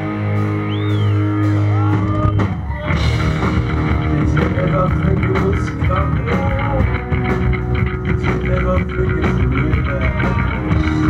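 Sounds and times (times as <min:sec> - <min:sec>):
bass guitar: 0:00.0 - 0:11.0
drums: 0:00.0 - 0:11.0
electric guitar: 0:00.0 - 0:11.0
person singing lead vocal: 0:03.7 - 0:07.2, 0:08.0 - 0:11.0.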